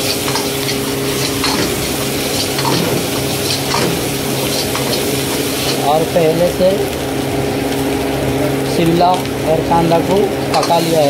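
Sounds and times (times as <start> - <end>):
ladle scraping metal wok: 0.0 - 5.8
food sizzling in hot oil: 0.0 - 11.0.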